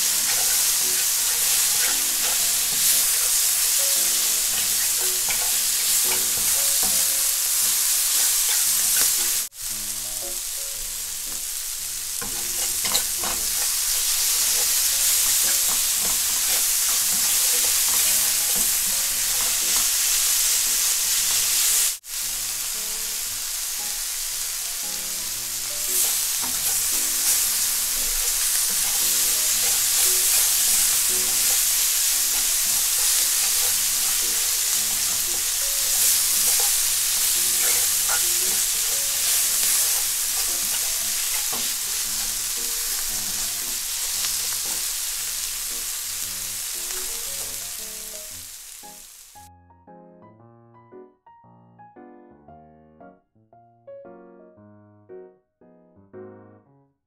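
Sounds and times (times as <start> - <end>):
chopsticks scraping pan: 0.0 - 9.5, 12.1 - 21.8, 25.6 - 47.8
quiet background music: 0.0 - 21.8, 22.5 - 51.0
food sizzling in oil: 0.0 - 49.5.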